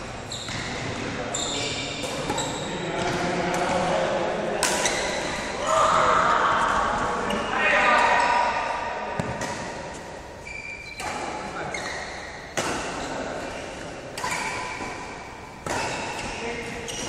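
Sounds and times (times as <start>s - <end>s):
badminton racket hitting shuttlecock: 1.9s - 4.0s, 4.6s - 5.5s, 10.9s - 17.0s.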